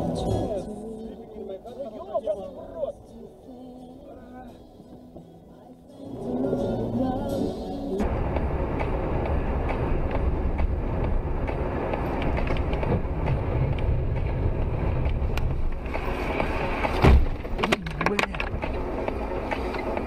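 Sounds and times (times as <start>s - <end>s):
car driving on wet road: 6.0s - 20.0s.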